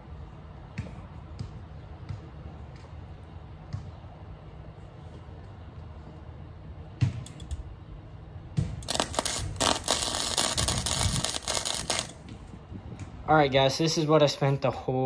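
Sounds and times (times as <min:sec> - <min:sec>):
arc welder strikes: 0:08.6 - 0:12.4
welding arc crackling: 0:08.8 - 0:12.2.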